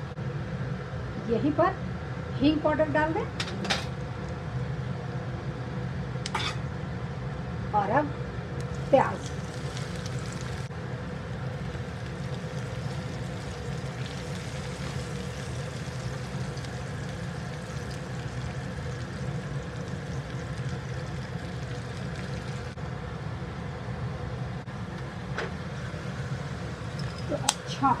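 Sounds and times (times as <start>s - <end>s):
steady low hum: 0.0s - 28.0s
food sizzling in oil: 8.6s - 22.8s, 25.7s - 28.0s.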